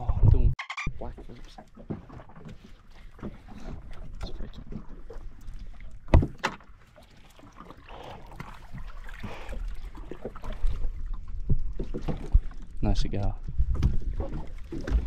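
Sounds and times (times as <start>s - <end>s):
water rushing and splashing: 1.2s - 12.6s
knocks on a small boat: 6.1s - 6.6s.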